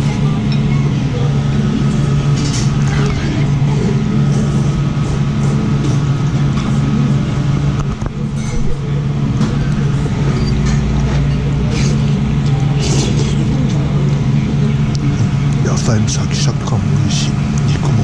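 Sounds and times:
steady low hum: 0.0s - 18.0s
slurping noodles: 12.7s - 13.6s.

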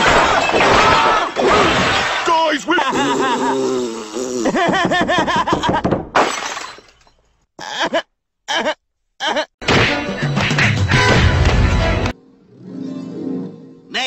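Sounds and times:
crash: 0.0s - 2.4s
man laughing: 2.7s - 5.9s, 7.6s - 9.6s
background music: 9.6s - 14.0s.

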